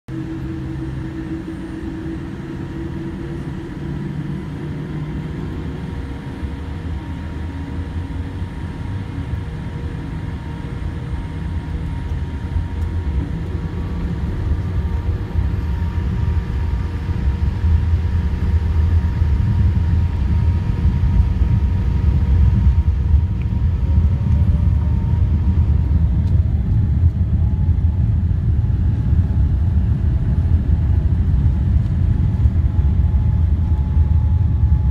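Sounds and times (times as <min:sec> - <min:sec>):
jet engine and runway rumble: 0:00.1 - 0:34.9.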